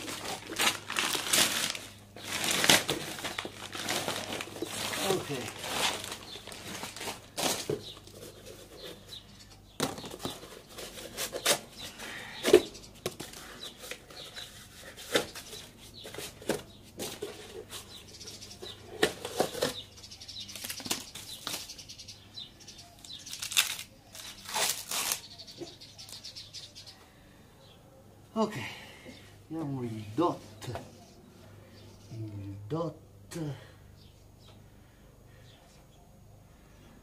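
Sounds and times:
sharp cardboard crackles: 0.0 - 9.0, 23.0 - 25.3
cardboard rustling and tearing: 0.0 - 9.2, 9.8 - 18.0, 19.0 - 19.9, 23.0 - 25.3.

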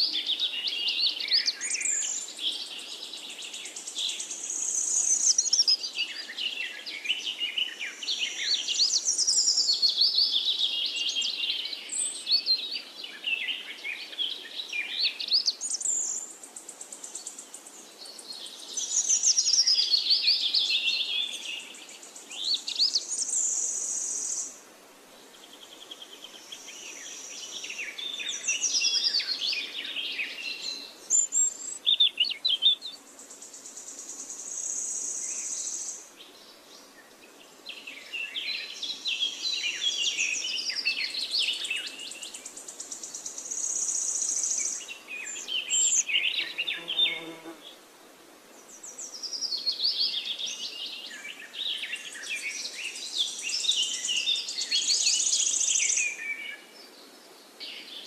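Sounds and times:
birds chirping and calling: 43.5 - 47.4.

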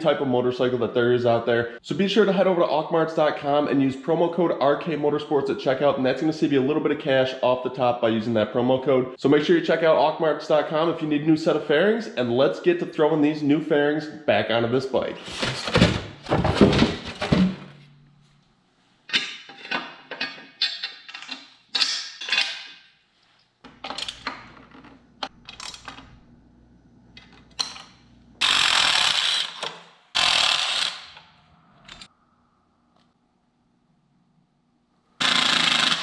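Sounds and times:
metal parts and wrenches clicking: 19.1 - 22.8.

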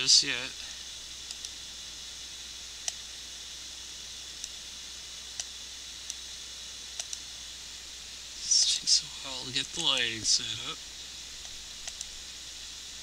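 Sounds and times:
steady hiss: 0.0 - 13.0
computer mouse clicking: 1.2 - 1.6, 7.0 - 7.2, 11.4 - 12.1.

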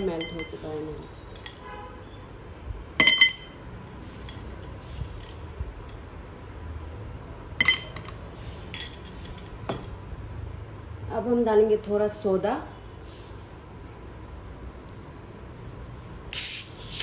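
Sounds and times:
ice clinking in glass: 3.0 - 4.5, 7.6 - 8.1.

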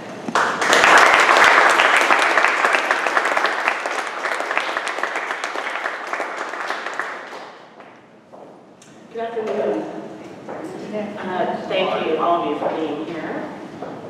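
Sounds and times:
audience applauding: 0.3 - 8.0.

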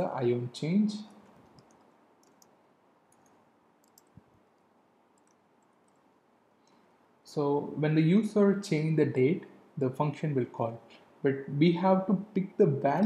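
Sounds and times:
soft keyboard keystrokes: 1.1 - 6.1.

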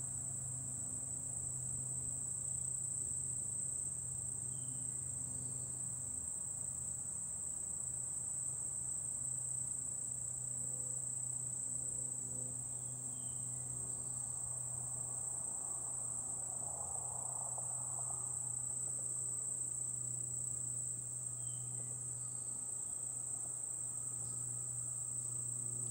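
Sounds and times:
insects chorus: 0.0 - 25.9.

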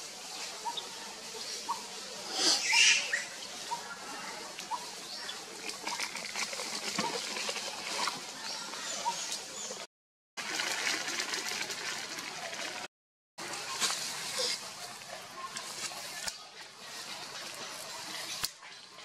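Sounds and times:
steady forest hiss: 0.0 - 5.9, 13.4 - 19.0.

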